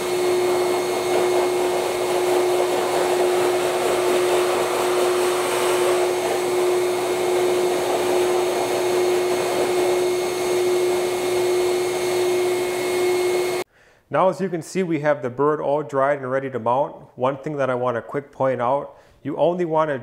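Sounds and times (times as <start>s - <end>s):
blower air rushing with whine: 0.0s - 13.7s.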